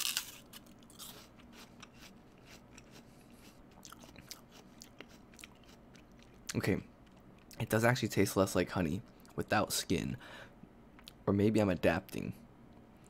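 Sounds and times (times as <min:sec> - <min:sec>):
person chewing crunchy apple: 0:00.0 - 0:07.6.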